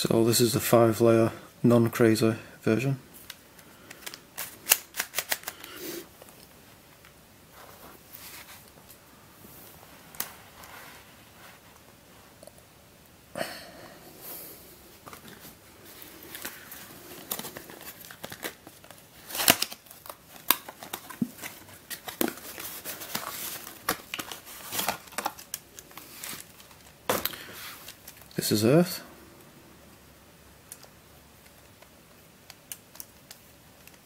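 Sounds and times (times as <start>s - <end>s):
cardboard box rustling: 15.1s - 25.4s.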